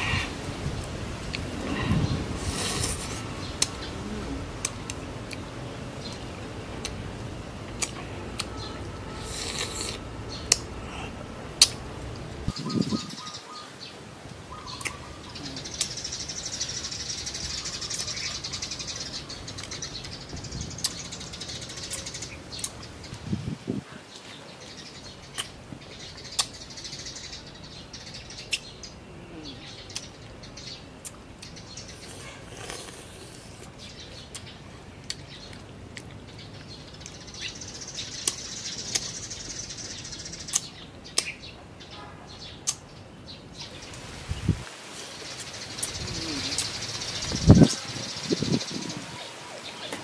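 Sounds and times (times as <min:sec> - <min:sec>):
birds chirping: 0:01.3 - 0:50.0
crisp fruit bites and chewing: 0:09.3 - 0:10.7, 0:31.0 - 0:33.7.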